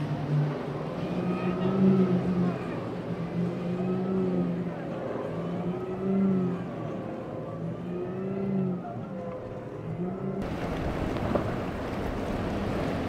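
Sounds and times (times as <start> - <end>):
rushing water: 0.0 - 5.8, 10.4 - 13.0
outboard engines running: 9.2 - 13.0
wind buffeting microphone: 10.4 - 13.0.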